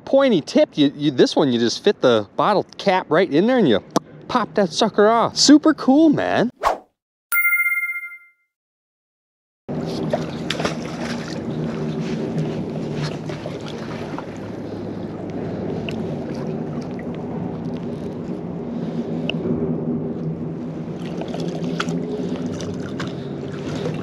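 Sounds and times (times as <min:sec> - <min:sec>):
short ringing tone: 0:07.3 - 0:08.5
river water sloshing: 0:09.8 - 0:18.4, 0:20.7 - 0:24.0
small splashes and clicks: 0:10.1 - 0:11.4, 0:15.2 - 0:17.9.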